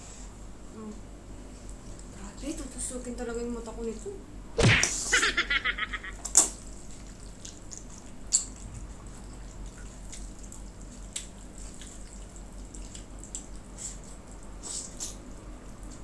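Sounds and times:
wet smack: 4.6s - 5.1s
noodles slurped and chewed: 6.2s - 16.0s.

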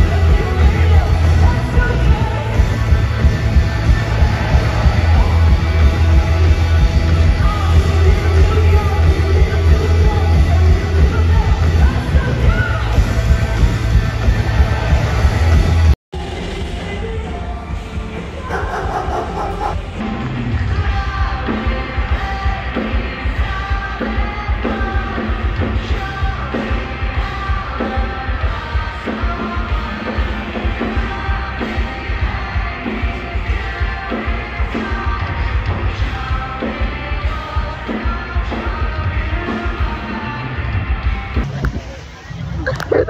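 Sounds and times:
live rock band playing: 0.0s - 42.2s
person singing: 16.2s - 40.6s.

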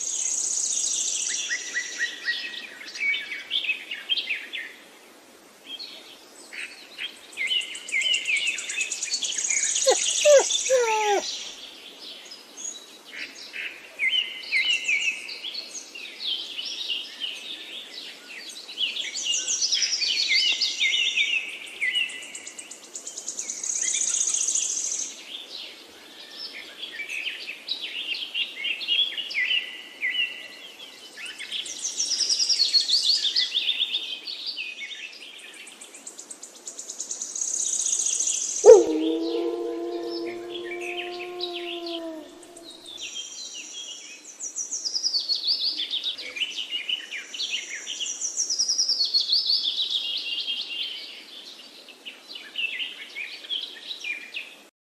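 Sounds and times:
low wavering bird call: 9.9s - 11.2s, 38.6s - 43.0s
birds chirping and trilling: 38.6s - 43.1s.

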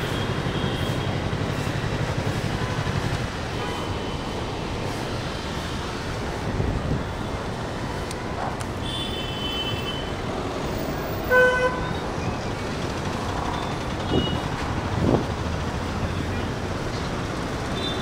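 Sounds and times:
city traffic: 0.0s - 18.0s
vehicle horn honking: 8.8s - 10.1s, 11.3s - 12.0s
wind on microphone: 14.0s - 15.5s.

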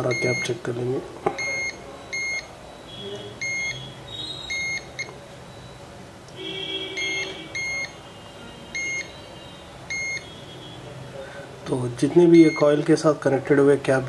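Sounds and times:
multimeter high-pitched beeps: 0.0s - 0.6s, 1.3s - 10.8s, 12.4s - 12.8s.

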